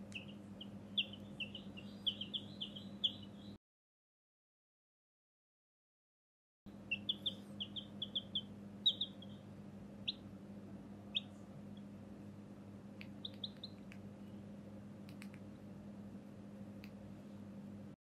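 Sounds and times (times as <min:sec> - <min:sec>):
chick peeping: 0:00.0 - 0:03.6, 0:06.8 - 0:10.3, 0:11.0 - 0:11.9, 0:13.0 - 0:14.0
steady low hum: 0:00.0 - 0:03.6, 0:06.7 - 0:18.0.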